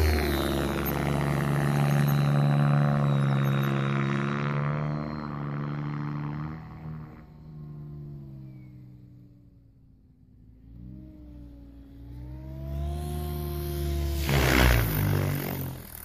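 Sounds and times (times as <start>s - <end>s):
model helicopter rotor drone: 0.0s - 16.0s.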